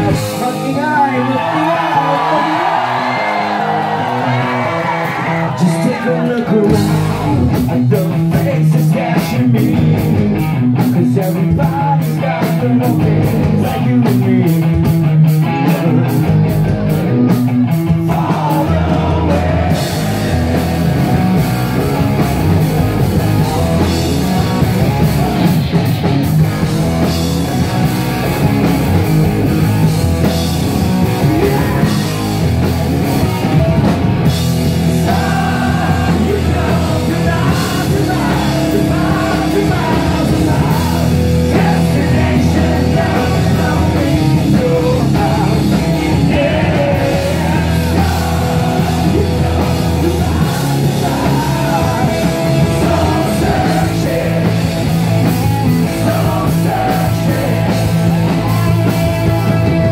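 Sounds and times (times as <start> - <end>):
live rock band playing: 0.0 - 59.9.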